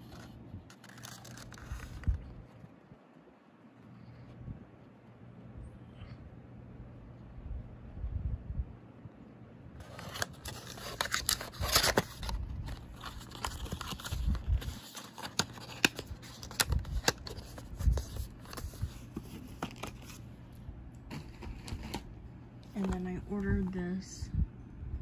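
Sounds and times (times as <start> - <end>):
packaging rustling and scraping: 0.0 - 2.7, 9.8 - 20.3, 21.1 - 23.2.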